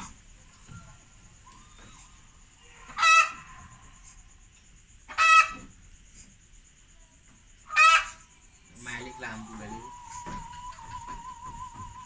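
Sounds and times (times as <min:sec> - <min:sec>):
farm animal calls: 0:00.0 - 0:04.0, 0:05.1 - 0:05.7, 0:07.6 - 0:12.0
high-pitched whine: 0:08.2 - 0:12.0.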